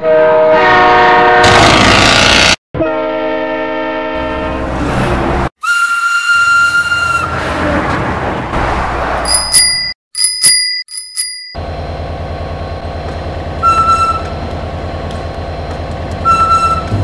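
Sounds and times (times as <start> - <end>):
bell ringing: 9.3 - 11.6.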